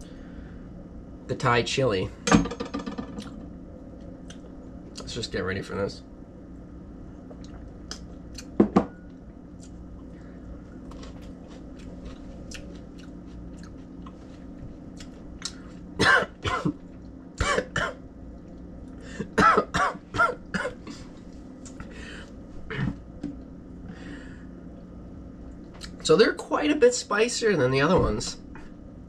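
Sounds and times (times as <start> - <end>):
man coughing and clearing throat: 16.0 - 16.8, 17.4 - 18.0, 19.2 - 21.1, 22.7 - 23.0.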